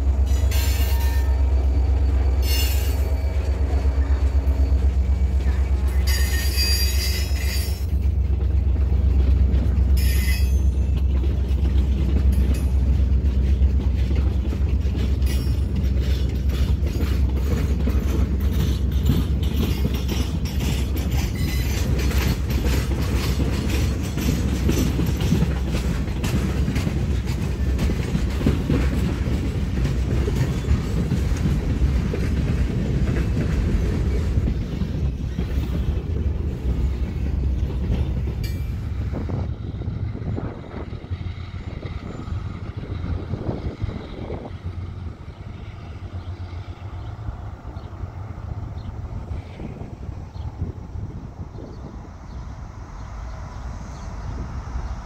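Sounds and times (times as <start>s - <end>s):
train wheel squeals: 0.0s - 8.2s, 9.5s - 50.8s
wheels clattering over rail joints: 0.0s - 50.8s
freight train rumbling past: 0.0s - 55.0s.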